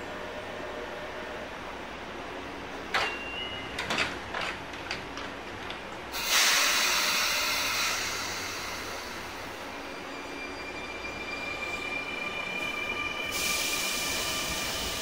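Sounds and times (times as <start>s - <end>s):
train doors shutting: 2.6s - 15.0s
compressed air hiss: 6.2s - 9.4s, 13.3s - 15.0s.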